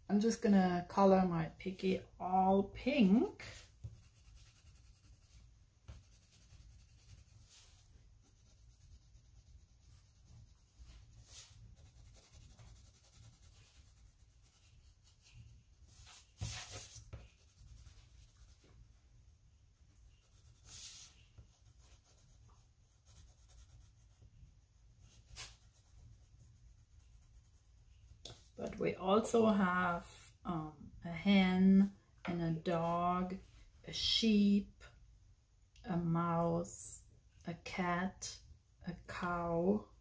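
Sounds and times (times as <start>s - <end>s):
pen scratching on paper: 2.8s - 18.7s, 20.1s - 24.2s.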